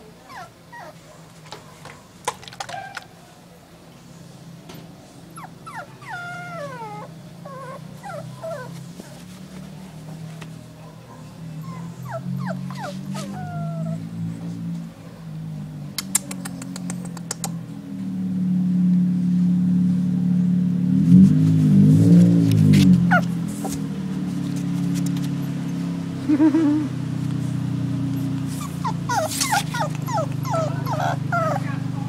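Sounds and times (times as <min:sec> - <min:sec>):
puppy whimpering: 0:00.2 - 0:01.0, 0:05.3 - 0:08.8, 0:11.6 - 0:14.1, 0:23.1 - 0:23.8, 0:28.2 - 0:31.9
quick run of clicks: 0:16.0 - 0:17.6.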